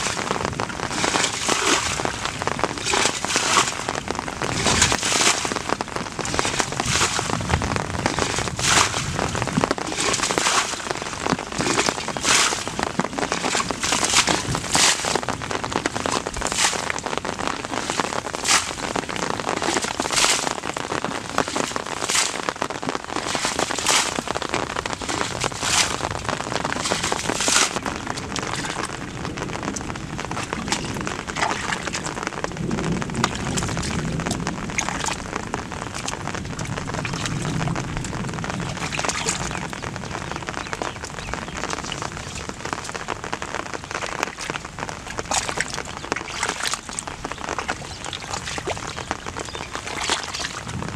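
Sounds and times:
bucket throwing water: 0.0 - 22.6, 23.2 - 28.9, 30.3 - 32.1, 49.8 - 50.7
hands sloshing through mud: 2.8 - 3.9, 4.5 - 5.6, 8.1 - 9.2, 9.8 - 15.2, 16.4 - 17.0, 17.8 - 19.0, 23.2 - 24.2, 25.0 - 27.8, 30.6 - 32.0, 49.7 - 50.6.

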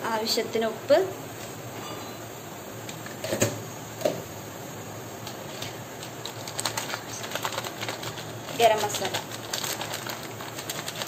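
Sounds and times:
spice powder clicking and rustling: 5.2 - 11.0.

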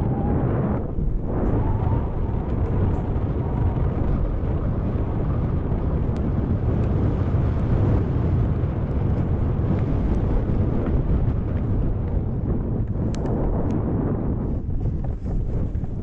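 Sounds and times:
bike tyres on dirt trail: 0.0 - 16.0
wind rumble on microphone: 0.0 - 16.0
faint ticks: 12.8 - 13.8.

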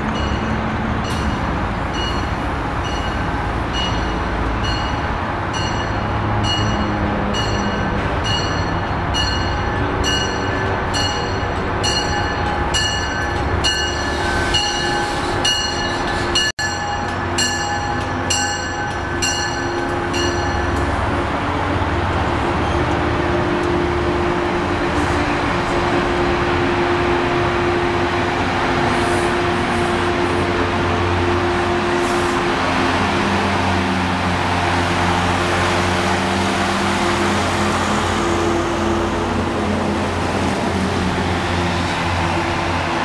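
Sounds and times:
train rumbling past: 0.0 - 43.0
train bell ringing: 0.1 - 21.1.

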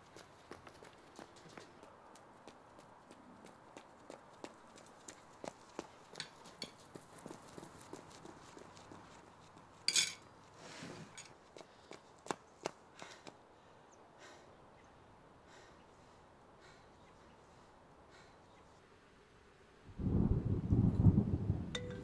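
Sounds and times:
running footsteps on pavement: 0.0 - 9.9, 11.4 - 13.5.

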